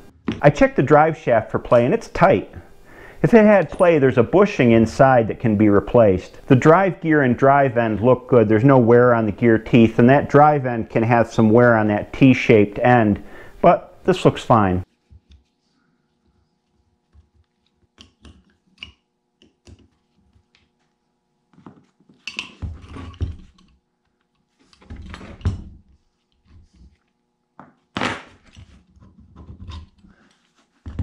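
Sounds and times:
clicks and knocks of handled parts: 21.6 - 25.8, 28.5 - 31.0.

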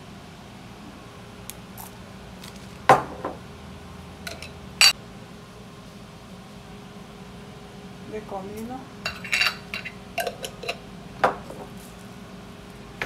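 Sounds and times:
glassy clink: 9.1 - 10.8.

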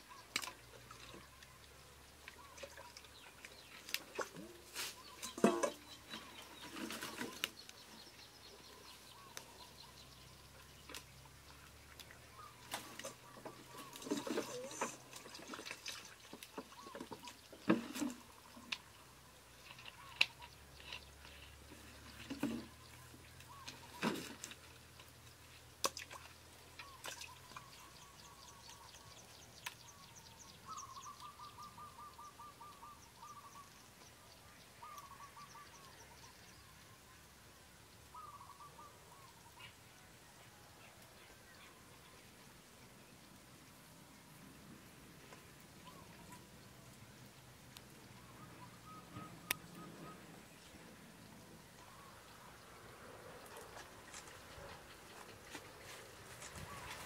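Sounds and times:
metal pots and utensils clinking: 5.2 - 6.1
water splashing and pouring: 11.2 - 18.9.

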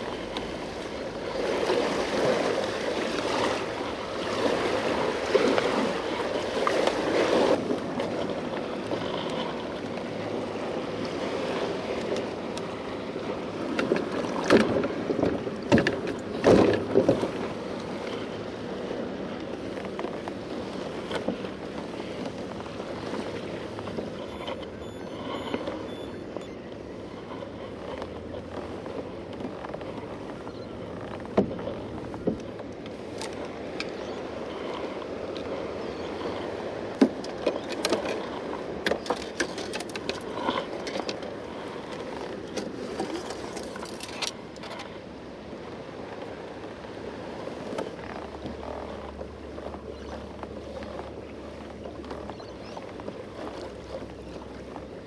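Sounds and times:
water splashing against plastic hull: 13.7 - 18.0.

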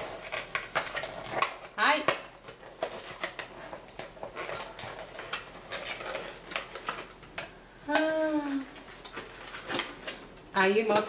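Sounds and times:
cardboard rustling: 2.5 - 7.2, 8.2 - 10.9.

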